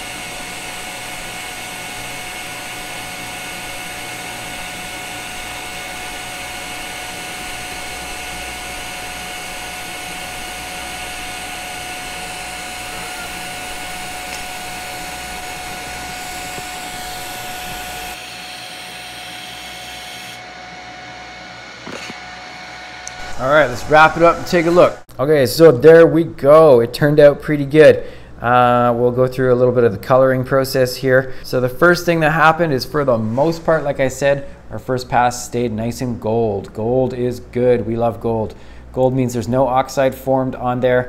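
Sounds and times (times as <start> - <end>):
welding arc hissing with high whine: 0.0 - 25.1.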